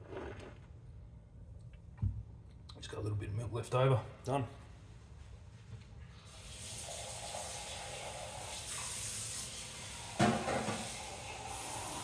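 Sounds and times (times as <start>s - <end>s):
steam wand hissing: 6.3s - 12.0s.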